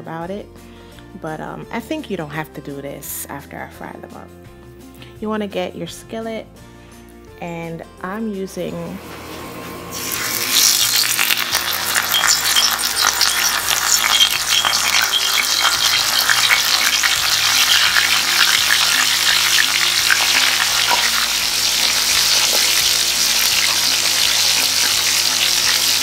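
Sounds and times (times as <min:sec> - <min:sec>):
fish frying in hot oil: 0:10.0 - 0:26.0.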